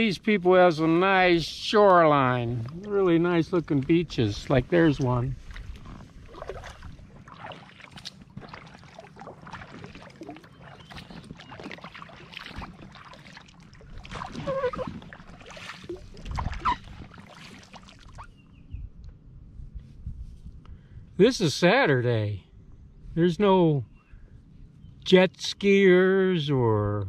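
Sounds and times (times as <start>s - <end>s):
water splashing against kayak: 1.7s - 18.3s.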